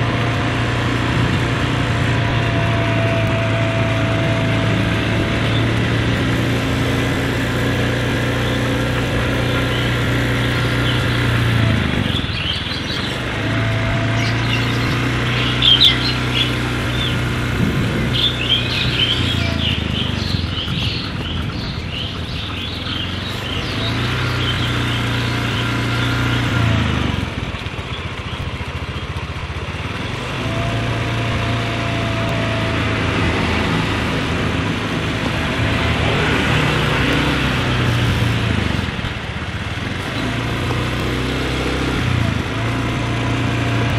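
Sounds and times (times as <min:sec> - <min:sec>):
small motorcycle engine running: 0:00.0 - 0:43.9
birds chirping: 0:02.1 - 0:30.4, 0:39.8 - 0:42.0.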